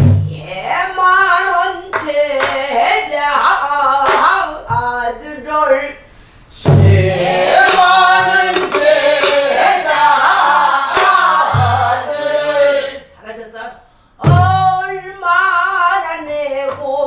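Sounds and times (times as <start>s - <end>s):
woman singing folk song: 0.3s - 6.0s, 14.2s - 17.0s
barrel drum strokes: 6.6s - 12.2s
group singing in unison: 6.6s - 13.1s.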